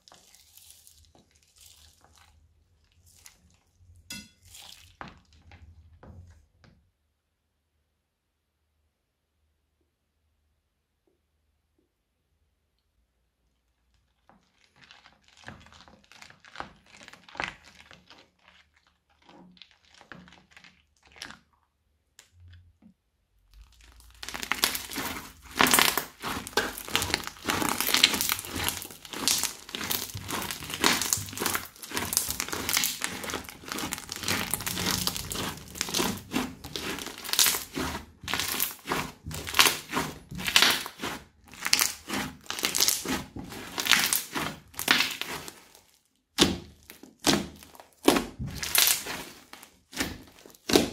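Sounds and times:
crunchy slime crackling and popping: 0:00.0 - 0:03.7, 0:13.8 - 0:21.7, 0:23.4 - 0:50.9
spatula stirring slime: 0:00.0 - 0:07.0, 0:13.2 - 0:50.9.

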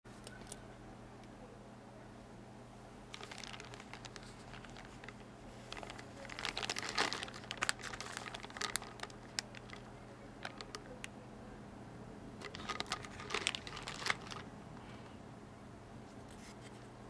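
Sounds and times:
plastic bag crinkling: 0:03.1 - 0:11.1, 0:12.4 - 0:14.5.

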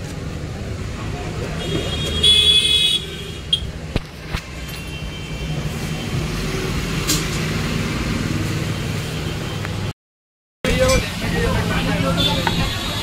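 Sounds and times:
road noise: 0:00.0 - 0:10.0, 0:10.6 - 0:13.0.

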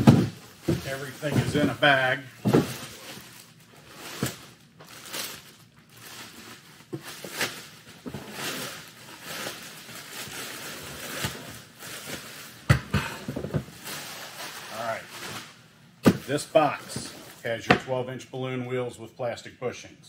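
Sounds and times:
plastic wrap crinkling: 0:00.0 - 0:12.7, 0:13.6 - 0:15.6.

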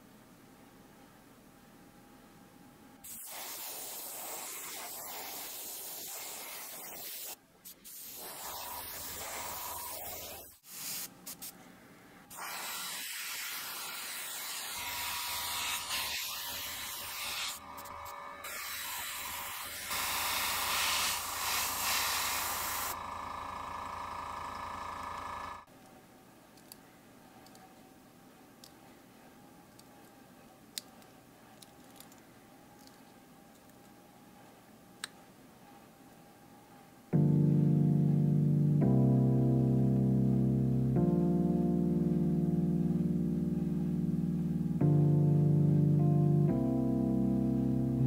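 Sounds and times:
airbrush spraying air hiss: 0:03.0 - 0:11.6, 0:12.3 - 0:23.0.

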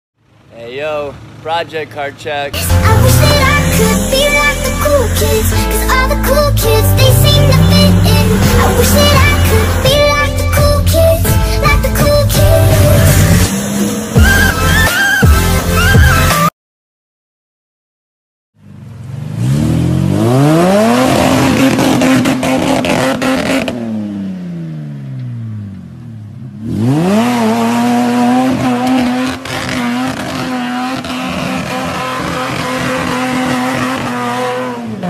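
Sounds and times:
engine revving hard: 0:02.6 - 0:10.7, 0:19.1 - 0:24.2, 0:26.6 - 0:35.0.

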